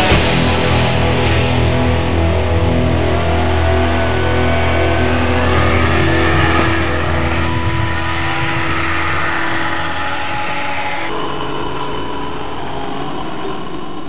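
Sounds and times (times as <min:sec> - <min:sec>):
music: 0:00.0 - 0:11.1
snowmobile engine revving: 0:00.0 - 0:14.0.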